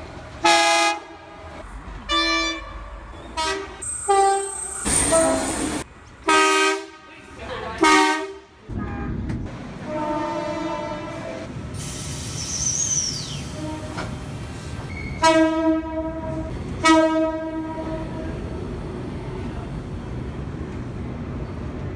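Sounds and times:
train and rail rumble: 0:00.0 - 0:21.9
train horn: 0:09.8 - 0:11.5, 0:13.6 - 0:14.1, 0:15.2 - 0:18.3.

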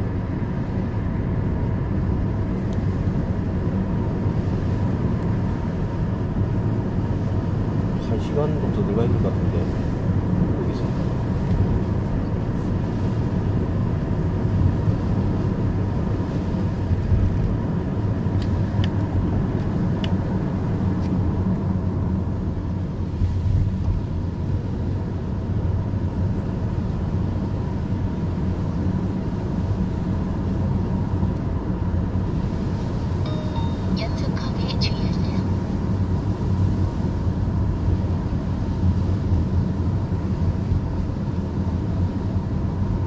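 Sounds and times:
car engine and tyre rumble: 0:00.0 - 0:43.0.

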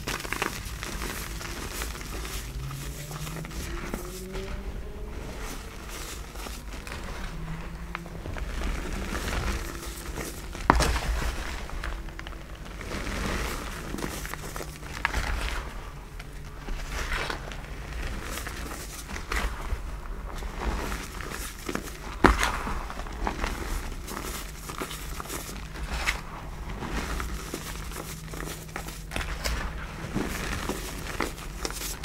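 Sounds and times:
chalk blocks crunching: 0:00.0 - 0:32.0.

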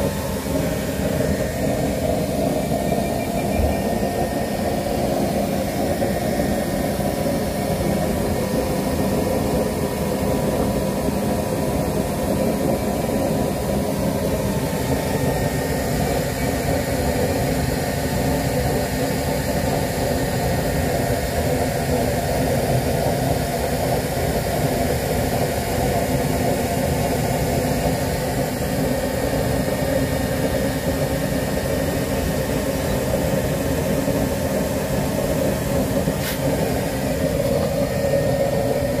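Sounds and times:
oil burner flame rushing: 0:00.0 - 0:39.0.

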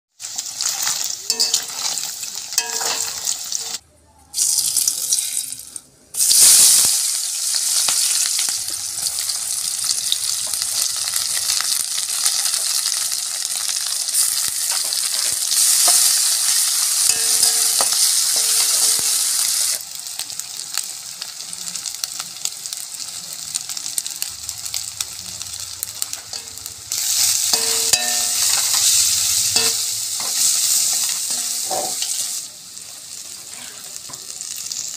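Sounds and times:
food sizzling in hot oil: 0:00.1 - 0:34.9
metal spatula scraping wok: 0:00.6 - 0:03.8, 0:14.7 - 0:19.3, 0:26.3 - 0:32.4, 0:33.2 - 0:34.2.

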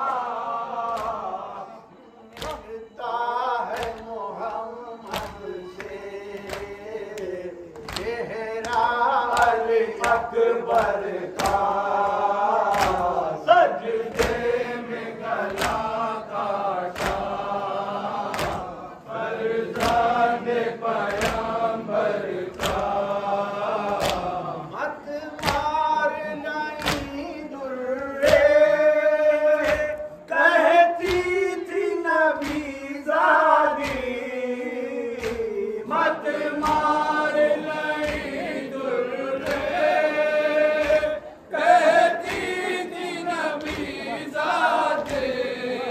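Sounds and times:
men chanting a lament: 0:00.0 - 0:45.9
hands slapping chests: 0:00.8 - 0:01.3, 0:03.7 - 0:24.5, 0:25.4 - 0:25.8, 0:26.8 - 0:27.2, 0:28.2 - 0:28.7, 0:29.5 - 0:30.1, 0:31.0 - 0:34.4, 0:35.0 - 0:45.7.

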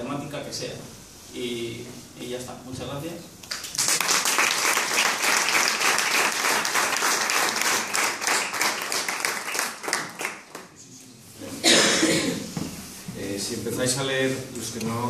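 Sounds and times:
audience applauding: 0:03.5 - 0:10.7.

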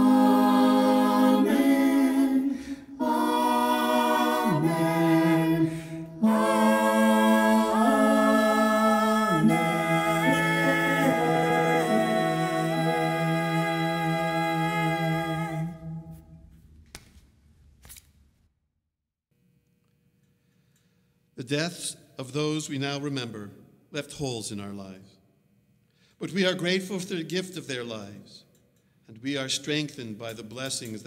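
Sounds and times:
group singing without instruments: 0:00.0 - 0:16.2.

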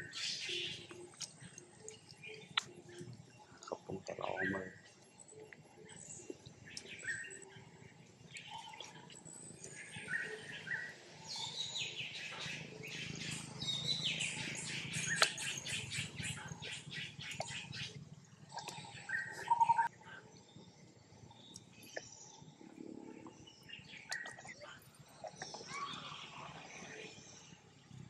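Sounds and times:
birds chirping: 0:00.0 - 0:27.6.

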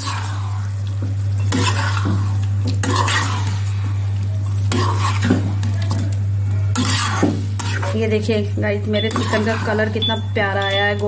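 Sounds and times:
metal spatula scraping a pan: 0:02.8 - 0:03.6, 0:06.7 - 0:08.0.

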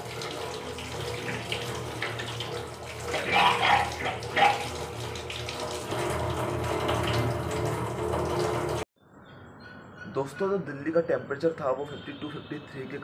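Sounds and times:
tap water running into a sink: 0:00.0 - 0:08.9
water splashing: 0:00.0 - 0:08.9.

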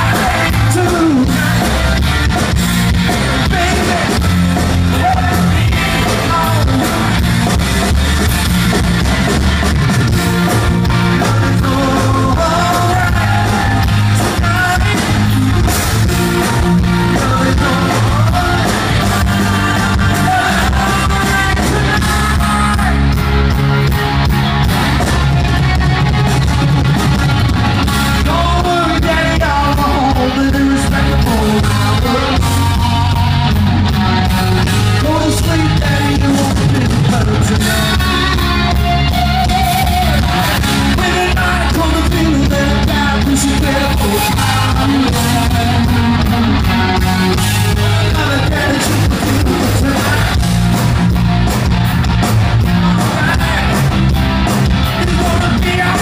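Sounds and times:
man singing lead vocal: 0:00.0 - 0:02.5, 0:03.1 - 0:07.5, 0:10.8 - 0:23.3, 0:27.8 - 0:33.6, 0:34.3 - 0:50.6, 0:52.6 - 0:54.1, 0:54.8 - 0:56.0
live rock band: 0:00.0 - 0:56.0.

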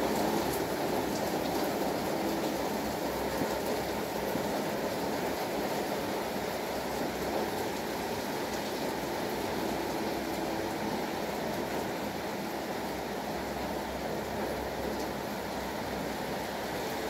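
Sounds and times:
heavy rain falling: 0:00.0 - 0:17.0.

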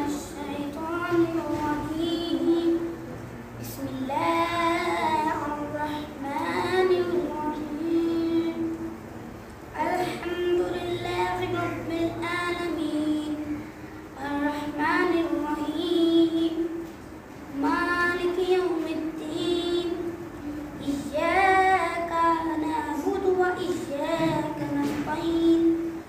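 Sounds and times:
high voice singing: 0:09.7 - 0:16.9.

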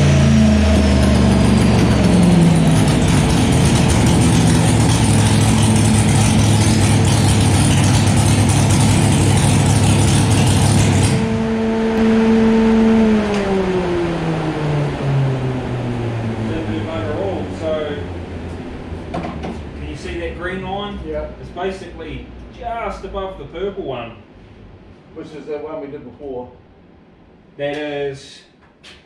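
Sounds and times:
race engine revving hard: 0:00.0 - 0:18.1
engine winding down tone: 0:00.0 - 0:23.8.

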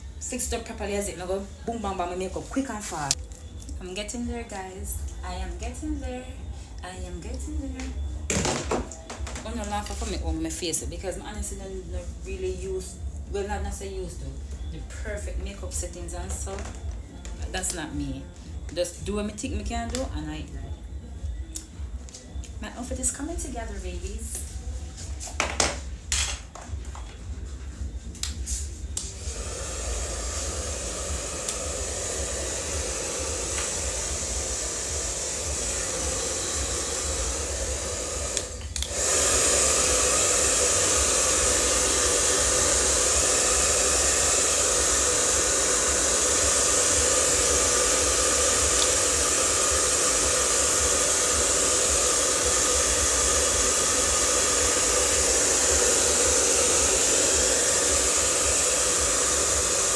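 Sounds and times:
hair dryer blowing: 0:28.2 - 0:59.9.

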